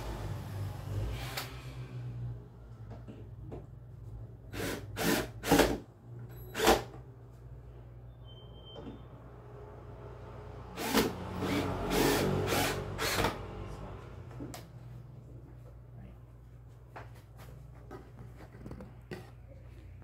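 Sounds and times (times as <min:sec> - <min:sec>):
cordless drill driving screws: 0:10.8 - 0:13.4.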